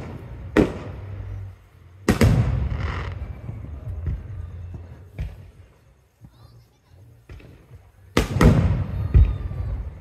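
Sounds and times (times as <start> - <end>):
firework booms: 0.0 - 4.4, 7.3 - 10.0
rumble: 0.0 - 6.2.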